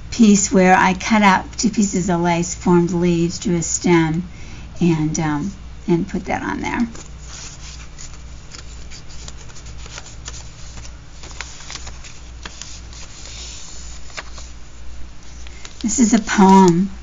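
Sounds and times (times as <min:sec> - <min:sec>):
steady low hum: 0:00.0 - 0:17.0
paper and card rustling: 0:06.7 - 0:16.8.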